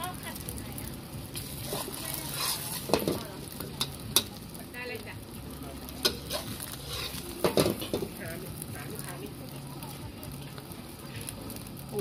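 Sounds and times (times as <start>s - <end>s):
omelette sizzling in a wok: 0.0s - 12.0s
metal spatula scraping wok: 1.3s - 4.4s, 5.8s - 9.0s.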